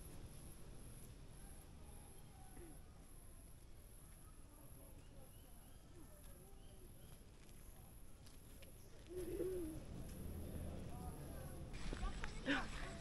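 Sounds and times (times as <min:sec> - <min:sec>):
low murmur: 0:08.6 - 0:13.0.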